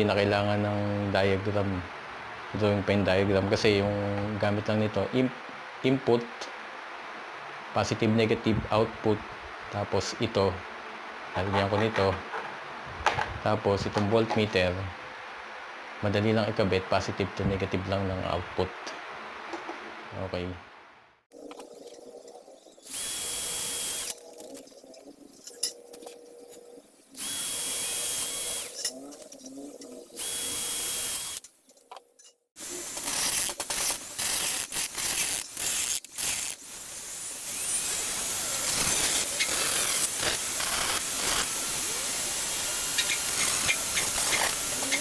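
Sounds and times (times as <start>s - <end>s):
rotary tool grinding: 22.8s - 24.7s, 27.2s - 31.5s, 32.2s - 45.0s
cordless drill drilling metal: 22.9s - 24.2s, 27.2s - 28.8s, 30.2s - 31.4s, 32.9s - 45.0s.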